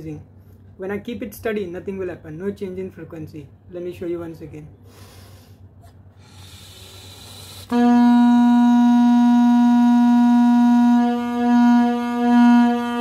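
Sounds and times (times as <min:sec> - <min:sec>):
buzzy horn note: 0:07.2 - 0:13.0.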